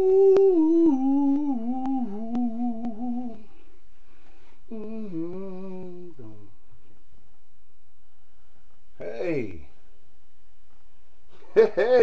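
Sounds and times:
man humming a tune: 0:00.0 - 0:03.6, 0:04.7 - 0:06.6.

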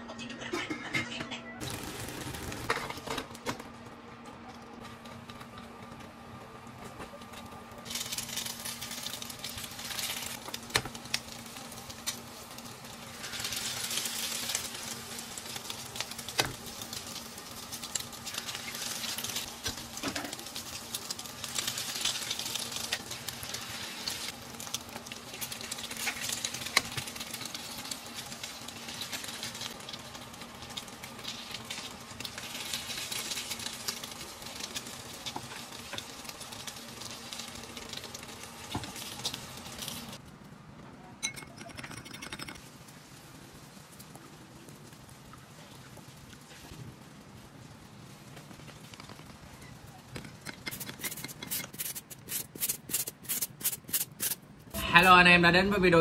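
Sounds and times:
food sizzling in oil: 0:07.8 - 0:40.2.

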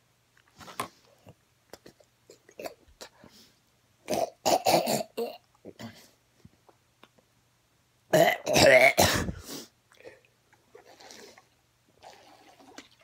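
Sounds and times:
man gagging and clearing throat: 0:08.1 - 0:09.4.

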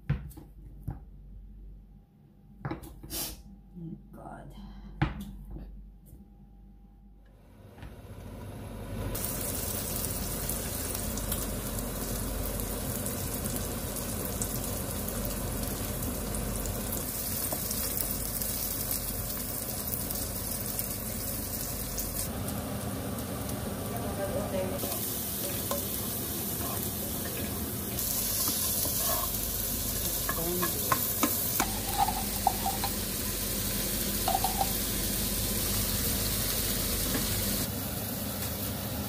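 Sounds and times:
food sizzling in hot oil: 0:09.1 - 0:39.0.

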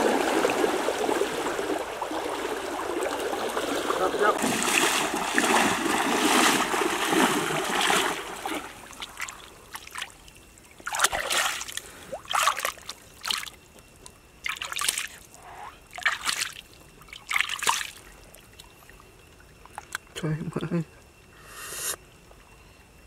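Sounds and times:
hands scooping water splashes: 0:00.0 - 0:10.1, 0:10.8 - 0:13.6, 0:14.4 - 0:15.2, 0:15.9 - 0:18.0
person wading through stream: 0:00.0 - 0:13.6, 0:14.4 - 0:18.7.

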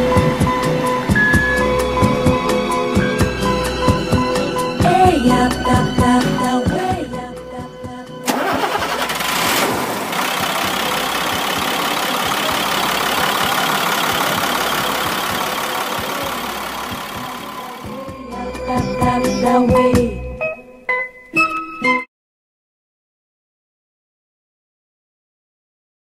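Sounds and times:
diesel truck engine starting and running: 0:08.2 - 0:18.0.

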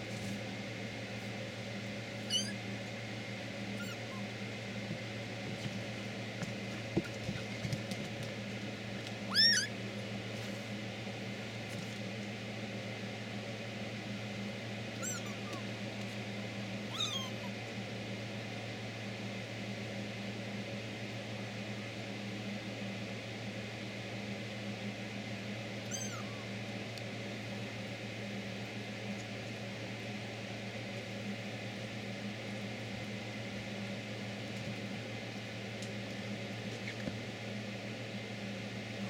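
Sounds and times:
steady low hum: 0:00.0 - 0:39.0
kitten mewing: 0:02.2 - 0:02.6, 0:03.8 - 0:04.4, 0:09.3 - 0:09.8, 0:15.0 - 0:15.7, 0:16.9 - 0:17.6, 0:25.8 - 0:26.5.

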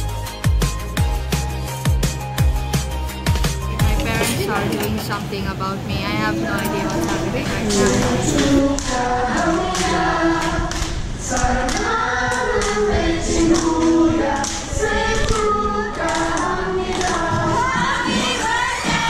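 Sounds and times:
group singing in unison: 0:06.2 - 0:19.0
people clapping along: 0:06.6 - 0:19.0.

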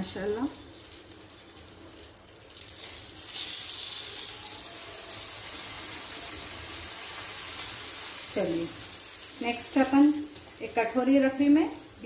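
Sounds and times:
food sizzling in pot: 0:00.0 - 0:12.0.

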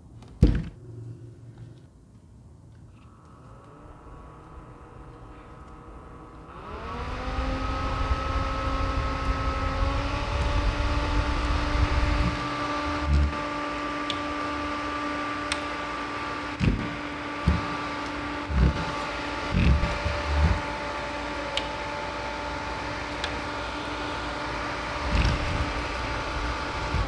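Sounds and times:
fan motor hum: 0:00.0 - 0:27.0
low thumps: 0:16.6 - 0:17.8.

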